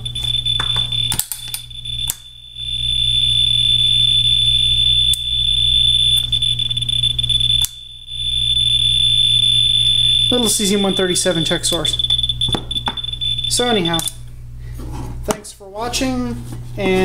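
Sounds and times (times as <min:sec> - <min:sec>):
radiation meter high-pitched buzz: 0:00.0 - 0:14.7.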